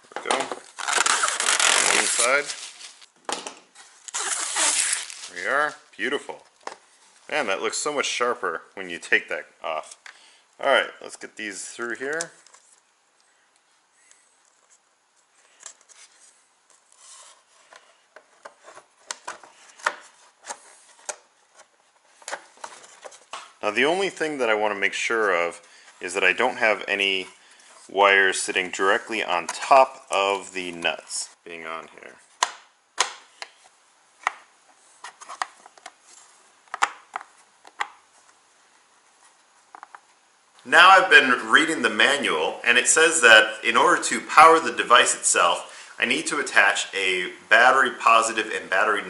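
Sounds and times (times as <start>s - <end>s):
wires rubbing and rustling: 0.2s - 5.8s.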